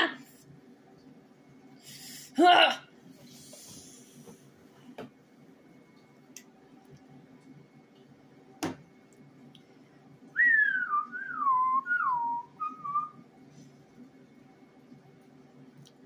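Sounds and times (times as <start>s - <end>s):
woman whistling: 10.4s - 13.2s.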